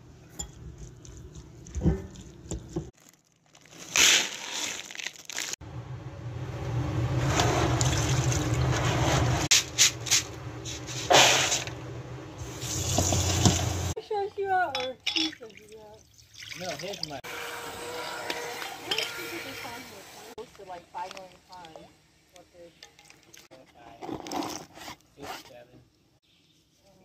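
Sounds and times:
tap water running: 7.3 - 9.3, 11.2 - 14.0.

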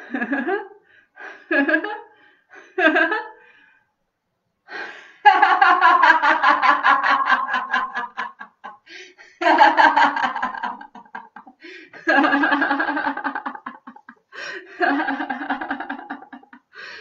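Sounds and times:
woman laughing: 5.3 - 16.7.

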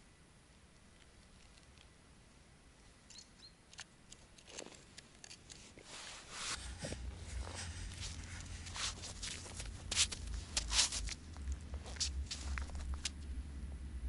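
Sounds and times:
faint high chirps: 3.1 - 3.6
clothing rustling: 5.5 - 13.3
snow crunching: 5.6 - 13.4
low rumble over microphone: 6.2 - 14.0.

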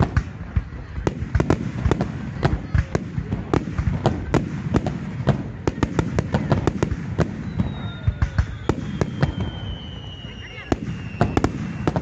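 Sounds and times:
fireworks bursting with sharp bangs: 0.0 - 12.0
high falling whistle: 7.4 - 12.0.

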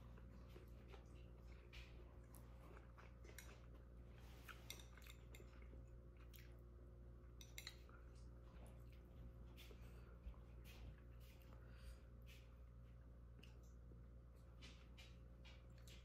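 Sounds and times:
low steady hum: 0.0 - 16.0
chopsticks clicking on ceramic plate: 7.4 - 7.8.

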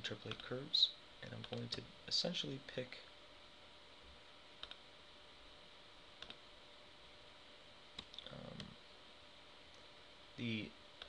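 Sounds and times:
computer mouse clicks: 0.3 - 0.5, 1.3 - 1.8, 4.6 - 4.8, 6.2 - 6.4, 8.0 - 8.7.

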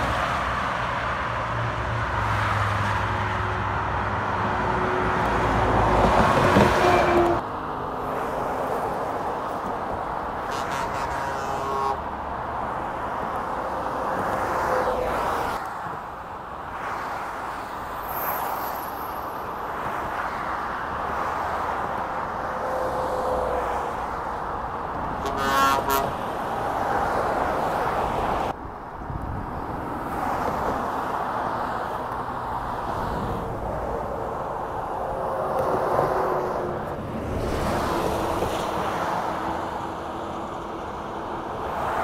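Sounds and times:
traffic passing: 0.0 - 42.0
vehicle horn: 6.6 - 7.4, 10.4 - 12.0, 25.2 - 26.2.

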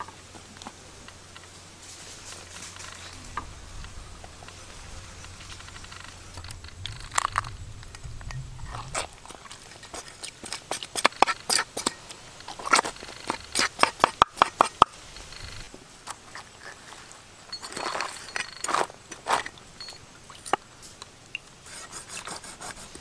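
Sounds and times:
knife scraping fish scales: 8.8 - 14.8, 21.6 - 23.0.

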